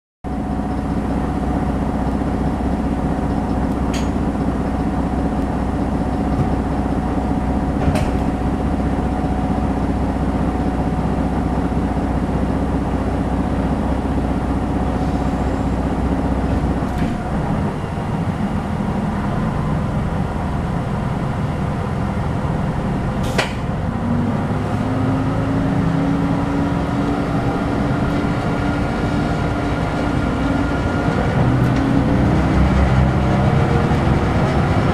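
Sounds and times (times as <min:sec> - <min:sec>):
diesel engine idling: 0:00.3 - 0:34.9
sharp click: 0:23.3 - 0:23.6.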